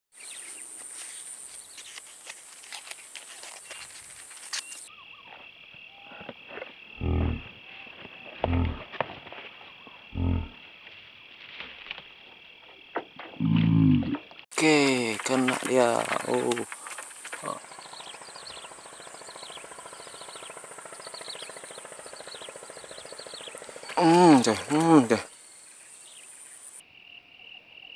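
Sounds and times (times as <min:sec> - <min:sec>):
lower insect tone: 0:00.2 - 0:27.9
scattered ticks: 0:14.6 - 0:25.2
high-pitched insect drone: 0:14.6 - 0:26.8.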